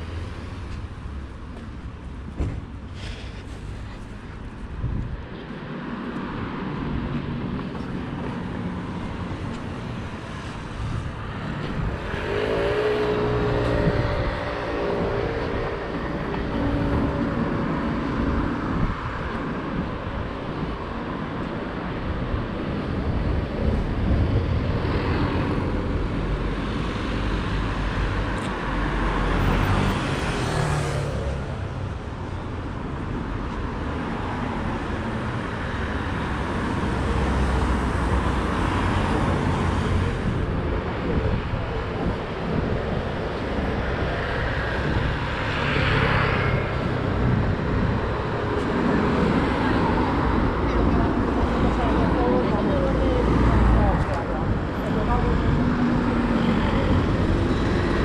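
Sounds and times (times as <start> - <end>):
cars passing: 0.0 - 58.0
louder vehicle engine: 7.7 - 19.5.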